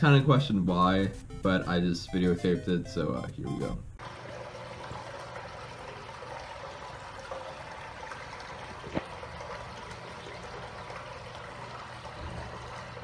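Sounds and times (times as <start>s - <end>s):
water trickling in a urinal: 4.0s - 13.0s.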